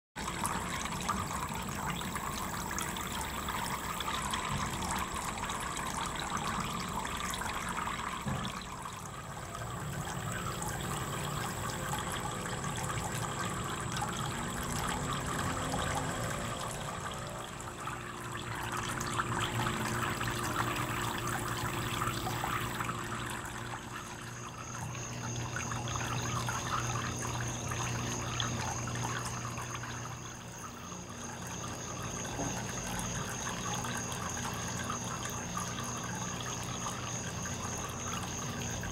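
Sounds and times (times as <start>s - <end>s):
fountain water trickling and splashing: 0.2s - 38.9s.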